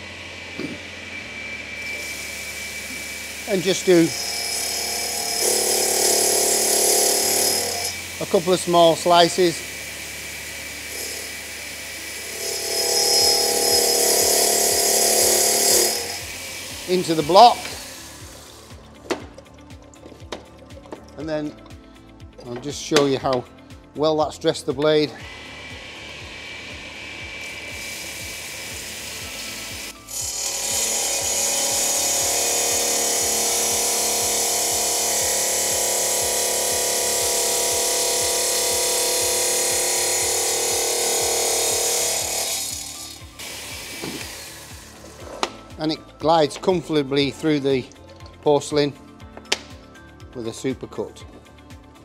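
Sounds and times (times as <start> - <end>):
blade grinding into stone: 1.8 - 9.6, 10.5 - 18.7, 27.5 - 45.6
tile saw blade spinning: 12.1 - 18.6, 27.5 - 45.0.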